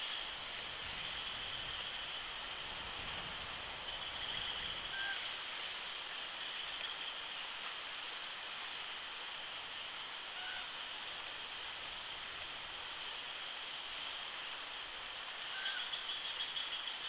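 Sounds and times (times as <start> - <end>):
rushing outdoor background noise: 0.0 - 17.0
faint bird chirp: 15.4 - 17.0.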